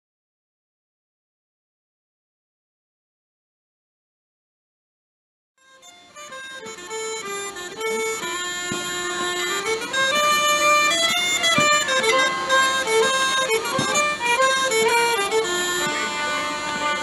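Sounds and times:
fiddle playing: 0:05.6 - 0:17.0
smallpipes playing: 0:05.6 - 0:17.0.

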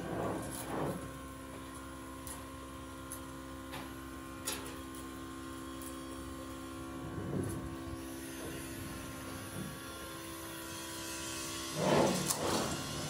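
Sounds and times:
workshop machinery humming: 0:00.0 - 0:13.0.

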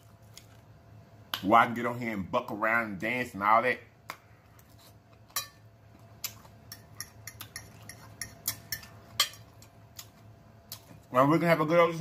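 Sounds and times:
fork clinking on a plate: 0:06.7 - 0:09.7.

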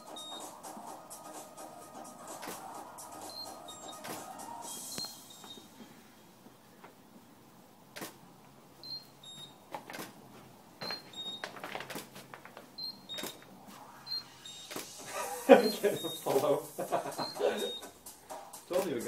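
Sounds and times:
camera double beeps: 0:00.0 - 0:00.5, 0:03.3 - 0:04.2, 0:04.9 - 0:05.6, 0:15.6 - 0:16.4, 0:17.2 - 0:17.9.

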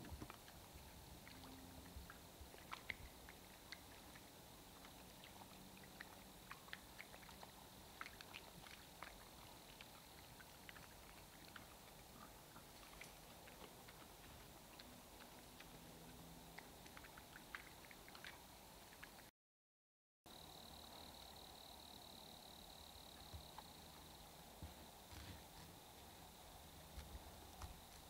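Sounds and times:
hog chewing crunching clicks: 0:00.2 - 0:19.3.

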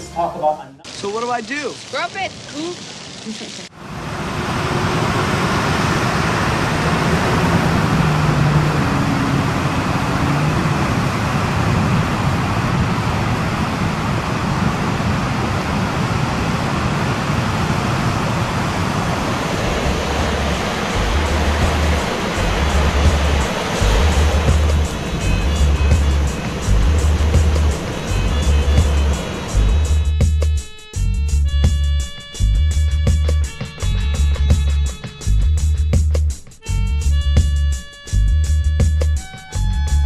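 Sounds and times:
ocean surf breaking: 0:00.8 - 0:30.0
deep pulsing bass beat: 0:19.6 - 0:40.0.

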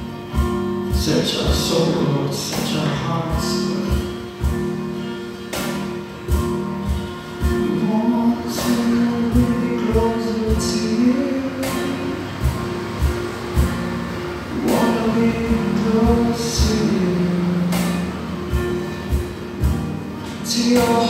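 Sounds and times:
live band playing: 0:00.0 - 0:21.0
kick drum: 0:00.3 - 0:01.7.

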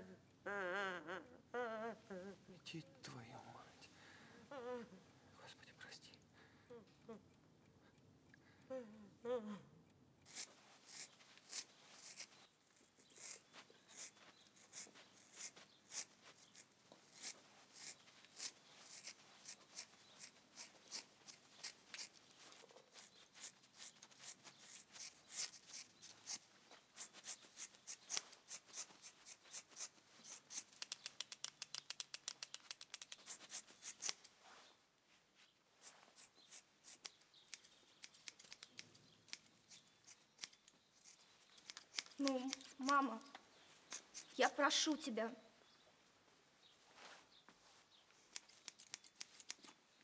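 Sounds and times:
scissors snipping hair: 0:10.2 - 0:34.3, 0:35.8 - 0:44.7, 0:48.2 - 0:49.8.

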